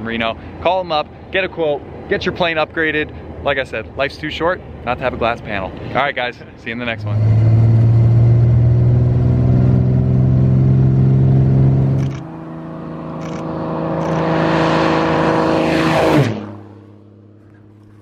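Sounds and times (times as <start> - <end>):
piston aircraft engine running: 8.2 - 18.0
aircraft engine passing close by: 10.6 - 18.0.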